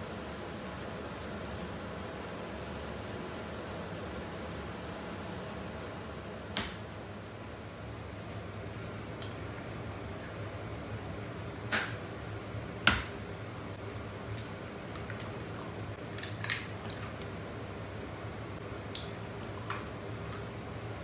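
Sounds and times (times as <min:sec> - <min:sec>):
low steady hum: 0:00.0 - 0:21.0
eggs cracking on bowl rim: 0:13.9 - 0:17.4.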